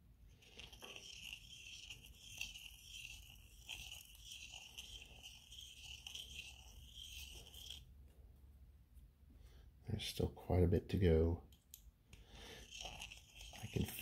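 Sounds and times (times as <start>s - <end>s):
blade scraping metal ring: 0.4s - 7.9s, 12.5s - 14.0s.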